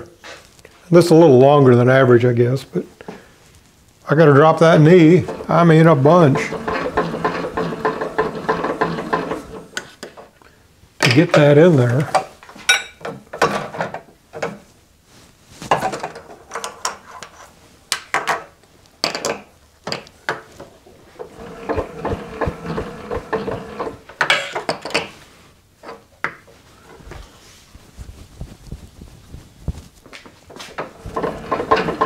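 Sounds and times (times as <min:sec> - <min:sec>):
metal rubbing: 0:04.6 - 0:09.7, 0:20.6 - 0:24.1.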